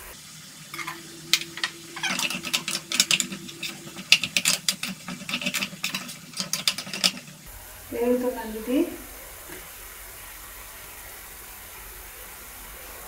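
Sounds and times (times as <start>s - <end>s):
spatula scraping metal pan: 0.8s - 7.5s.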